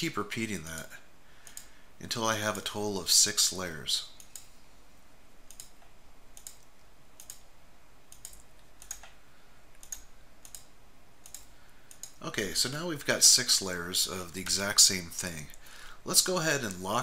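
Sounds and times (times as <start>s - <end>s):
faint computer mouse clicks: 8.1s - 12.2s.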